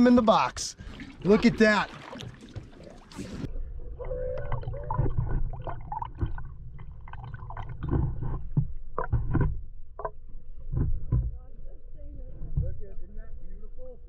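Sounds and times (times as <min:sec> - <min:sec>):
water gurgling: 0:00.0 - 0:11.0
underwater low rumble: 0:00.8 - 0:14.0
wavering tone: 0:03.6 - 0:05.8.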